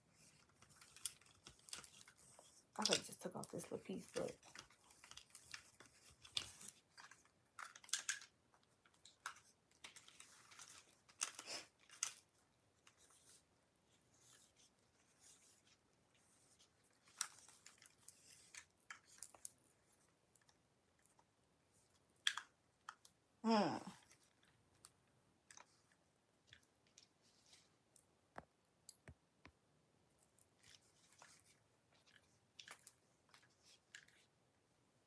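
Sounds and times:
plastic camera clicks and rustles: 0.1s - 13.4s, 14.1s - 23.2s, 30.3s - 34.3s.

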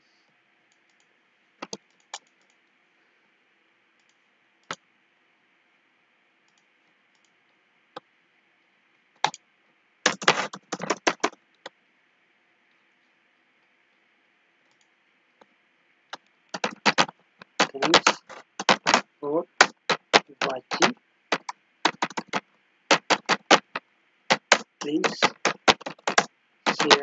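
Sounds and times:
computer keyboard and mouse clicks: 0.7s - 2.7s, 4.0s - 4.8s, 6.5s - 7.4s, 9.2s - 9.4s, 10.1s - 11.8s, 14.6s - 14.9s, 16.1s - 27.0s.

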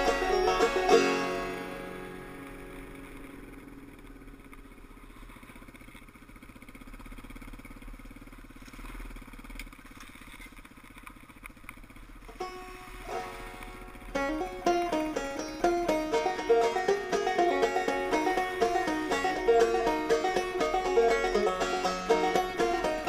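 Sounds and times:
banjo music: 0.0s - 3.9s, 12.3s - 23.0s
dirt bike engine running: 0.0s - 23.0s.

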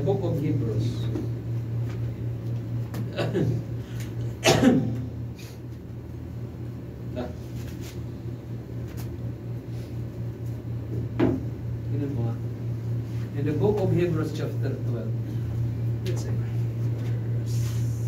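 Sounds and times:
low electrical hum: 0.0s - 18.0s
man coughing: 3.0s - 5.2s.

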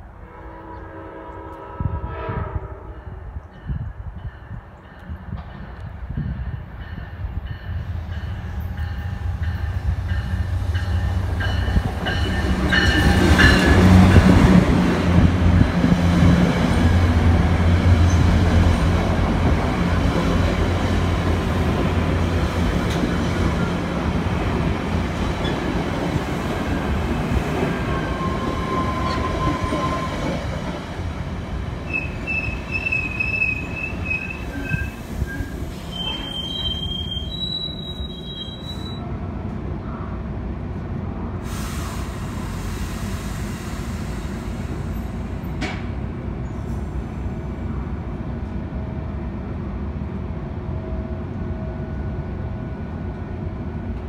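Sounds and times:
diesel locomotive engine hum: 0.0s - 54.0s
train coaches rolling past: 0.0s - 54.0s
squealing train wheels: 27.5s - 30.6s, 31.8s - 39.0s.

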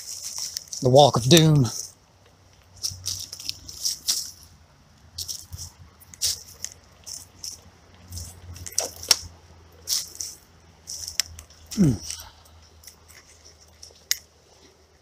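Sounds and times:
footsteps crunching through dry leaves: 0.0s - 2.0s, 2.6s - 13.8s.

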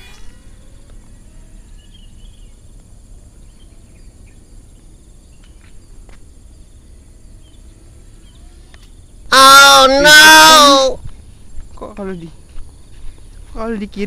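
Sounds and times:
faint bird chirps: 0.0s - 9.4s
insect drone: 0.0s - 14.0s.

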